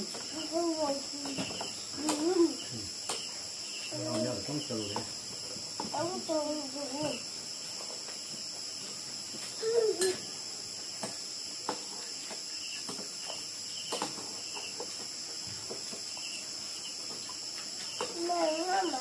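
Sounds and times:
crickets and insects chirring: 0.0s - 19.0s.

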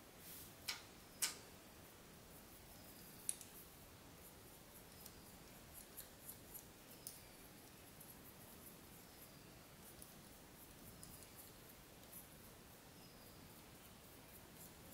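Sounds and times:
faint ticks and taps: 3.2s - 3.6s, 9.9s - 12.3s.

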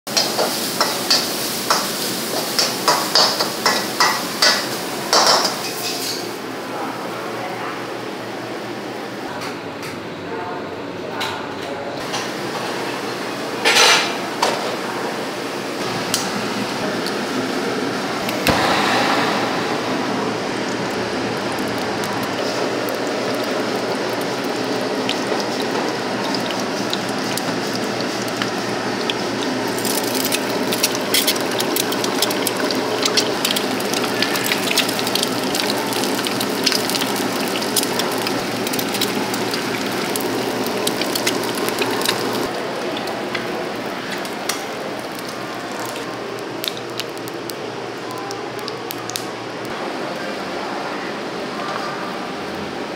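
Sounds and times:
egg sizzling in hot oil: 0.1s - 6.2s, 20.3s - 47.6s.

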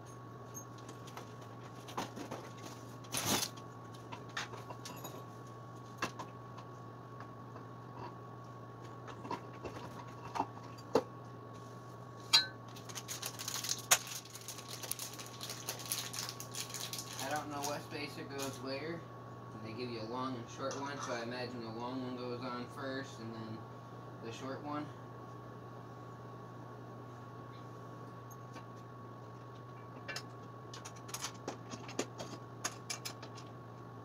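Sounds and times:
steady low hum: 0.0s - 34.0s
small parts rattling: 12.7s - 17.8s
metal parts clicking and clinking: 30.1s - 33.5s.

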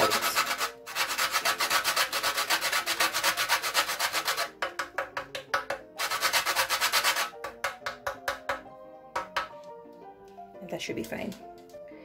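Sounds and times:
nutmeg grated on metal grater: 0.0s - 5.0s, 6.0s - 7.8s
soft background music: 0.0s - 12.0s.

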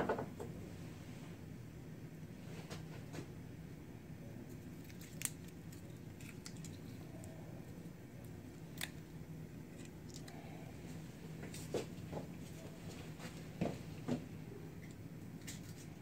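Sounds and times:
steady low hum: 0.0s - 16.0s
garlic skin crackling: 4.4s - 10.4s.

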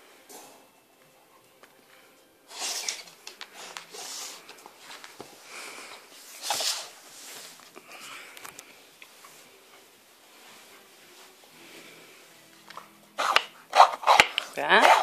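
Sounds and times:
dog sniffing and snorting: 6.3s - 7.0s.

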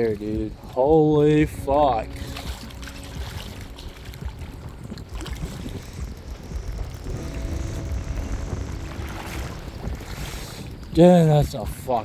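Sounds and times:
wind buffeting microphone: 2.3s - 12.0s
faint steady hum: 5.9s - 10.7s.

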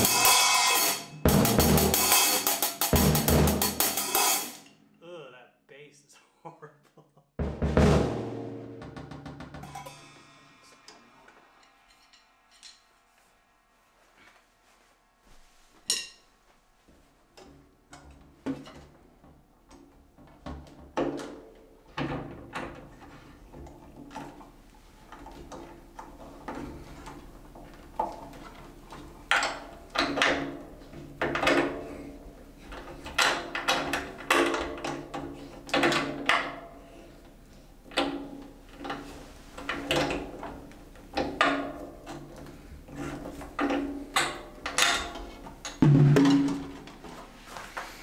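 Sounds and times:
drum hits ringing: 0.0s - 4.6s, 7.4s - 10.7s, 45.8s - 47.0s.

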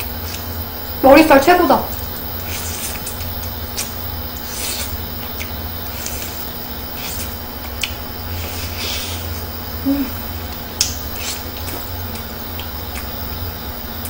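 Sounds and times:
chewing and shell cracking: 2.4s - 8.7s, 10.3s - 14.0s
mouth clicks and smacks: 7.1s - 8.0s.

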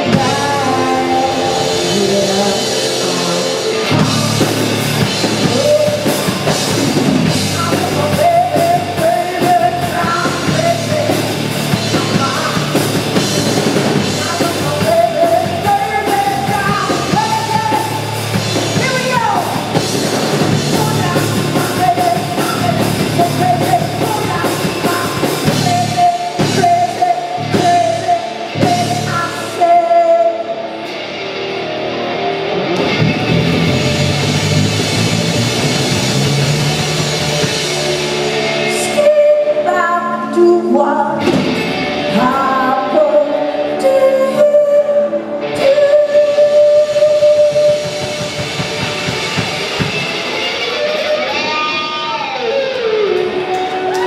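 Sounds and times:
woman singing: 0.0s - 4.4s, 5.4s - 6.5s, 7.5s - 12.8s, 14.0s - 18.2s, 20.6s - 30.6s, 38.6s - 41.4s, 42.0s - 48.2s
bass guitar: 0.0s - 54.0s
drums: 0.0s - 54.0s
electric guitar: 0.0s - 54.0s.

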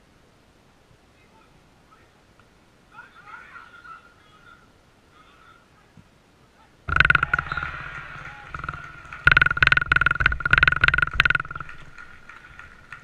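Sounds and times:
hand clapping: 7.1s - 13.0s
spectators shouting: 7.2s - 9.3s.

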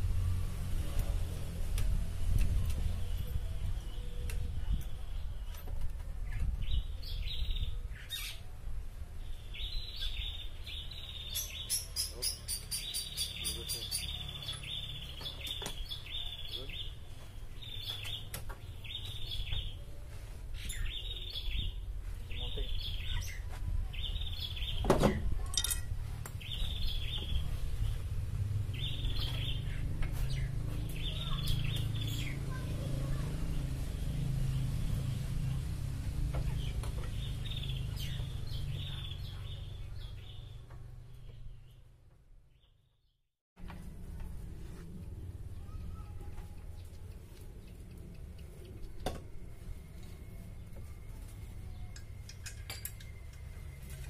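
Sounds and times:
bird chirping: 9.2s - 20.0s, 26.3s - 28.1s, 28.7s - 32.6s, 36.4s - 43.2s.

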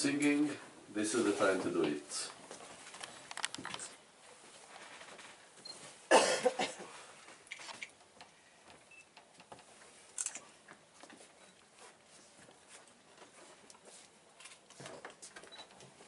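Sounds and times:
faint knocks and rustles: 1.2s - 6.1s, 7.1s - 16.0s
person coughing: 6.1s - 7.0s.

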